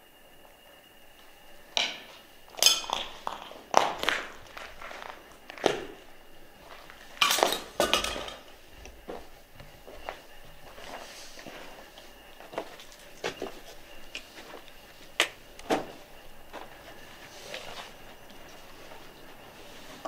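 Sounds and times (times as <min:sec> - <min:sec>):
footsteps crunching on rubble: 0:01.2 - 0:20.0
debris clinking and clattering: 0:01.8 - 0:05.7, 0:07.2 - 0:08.6.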